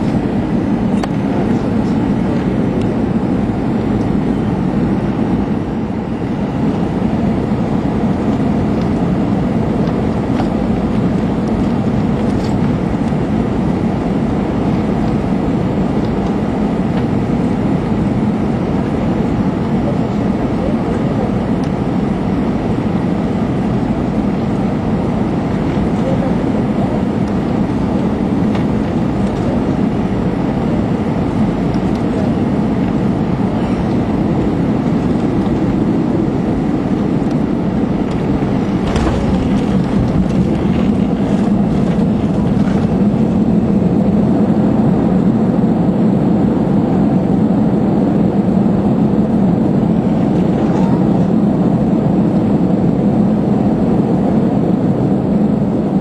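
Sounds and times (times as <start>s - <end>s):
jet engines and airflow rushing: 0.0s - 56.0s
wheels touching down thump: 38.8s - 43.0s.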